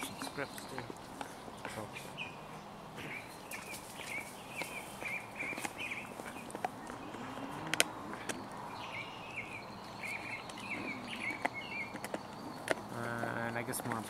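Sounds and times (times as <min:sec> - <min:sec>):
bird chirping: 0:00.0 - 0:14.0
dog gnawing a bone: 0:03.0 - 0:08.6, 0:09.4 - 0:14.0.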